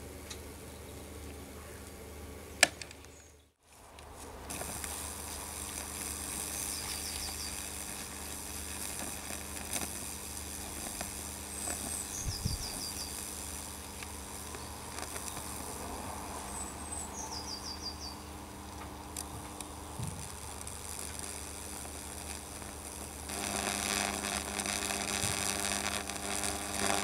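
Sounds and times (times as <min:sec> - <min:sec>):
electrical hum with hiss: 0:00.0 - 0:27.0
electrical crackles: 0:03.7 - 0:27.0
bird calling: 0:06.4 - 0:07.9, 0:11.4 - 0:15.8, 0:16.4 - 0:18.9.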